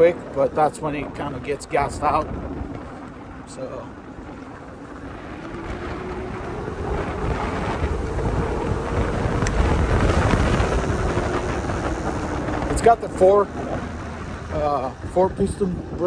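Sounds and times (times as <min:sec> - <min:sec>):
wind rushing over microphone: 0:00.0 - 0:16.0
electric motor whine: 0:01.8 - 0:16.0.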